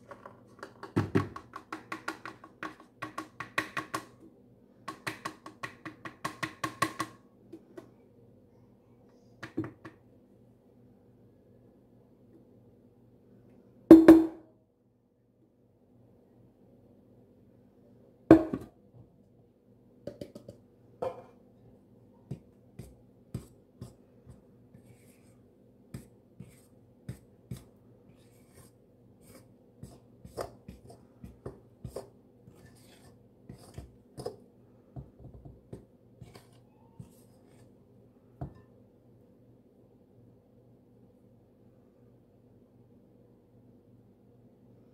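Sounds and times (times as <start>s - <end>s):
faint steady hum: 0.0s - 44.9s
fork scraping ceramic bowl: 31.9s - 34.4s.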